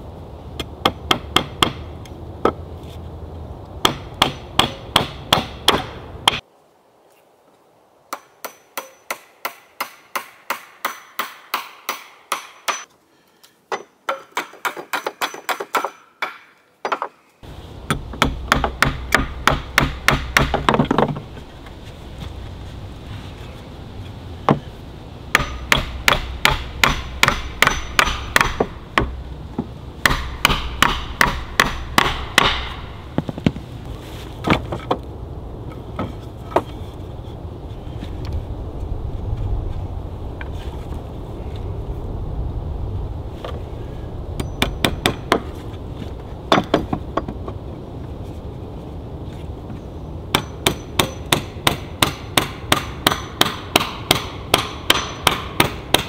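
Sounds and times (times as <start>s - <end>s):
hammer striking nails into wood: 3.8s - 6.4s, 17.9s - 21.1s, 25.3s - 29.1s, 30.1s - 32.8s, 50.3s - 56.0s.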